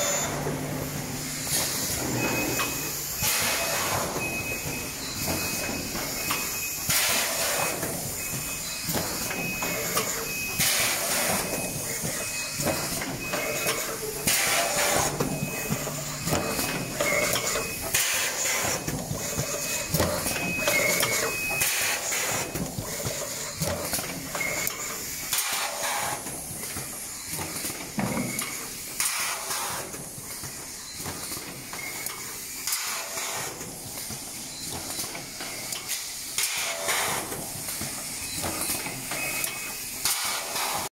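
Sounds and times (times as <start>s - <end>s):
machinery running: 0.0s - 25.9s.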